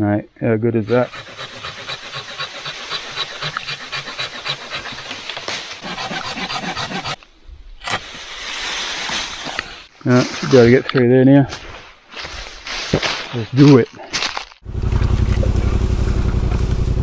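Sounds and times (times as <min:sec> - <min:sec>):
pruning saw cutting log: 0:00.9 - 0:07.2.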